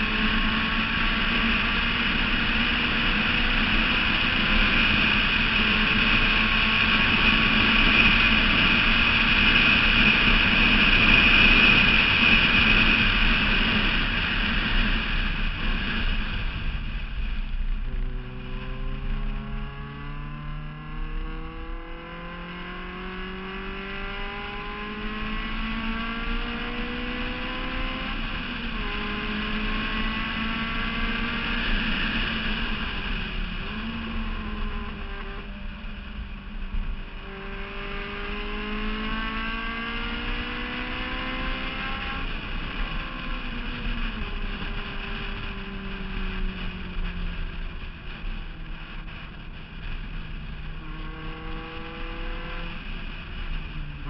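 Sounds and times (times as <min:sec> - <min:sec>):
car engine accelerating: 0:00.0 - 0:54.0
wind rushing over microphone: 0:00.0 - 0:54.0.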